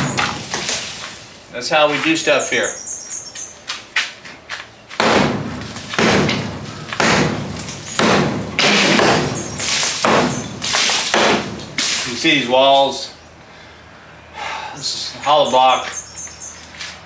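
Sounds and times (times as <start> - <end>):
sledgehammer striking concrete block: 5.0 - 12.0.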